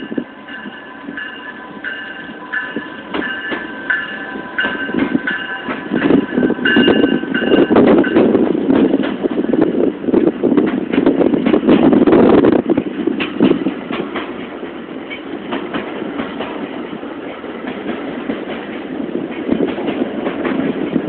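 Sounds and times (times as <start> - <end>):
bell dinging: 0.0 - 8.3
train rumble and wheel clatter: 0.0 - 21.0.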